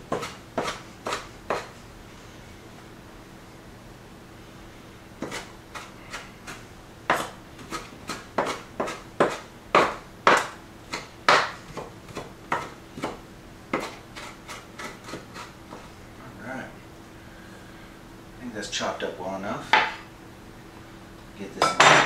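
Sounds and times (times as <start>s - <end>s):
knife chopping on wooden board: 0.1s - 1.7s, 5.2s - 15.9s.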